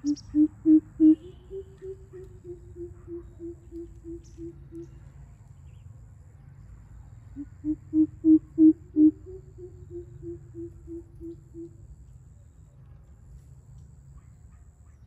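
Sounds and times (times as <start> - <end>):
bird hooting deeply: 0.0 - 5.0, 7.4 - 11.8.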